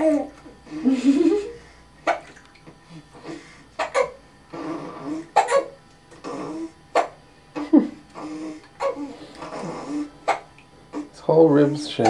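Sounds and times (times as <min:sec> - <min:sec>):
baby hiccupping: 0:02.0 - 0:02.4, 0:03.2 - 0:11.2.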